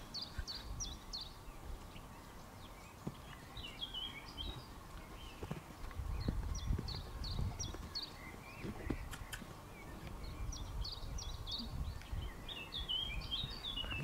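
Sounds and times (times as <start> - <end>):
bird chirping: 0.0 - 14.0.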